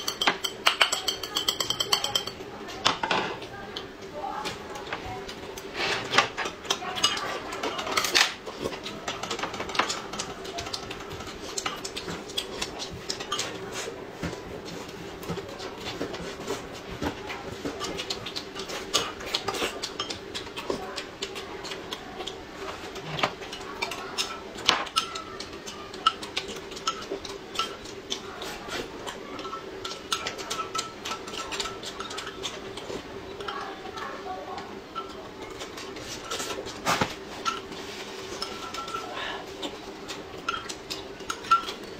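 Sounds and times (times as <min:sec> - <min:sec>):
cutlery clinking on plates: 0:00.0 - 0:03.4, 0:34.9 - 0:41.9.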